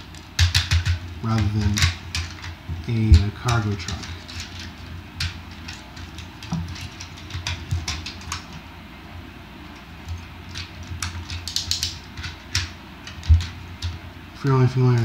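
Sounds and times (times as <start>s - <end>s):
plastic toy parts clicking: 10.6s - 13.9s.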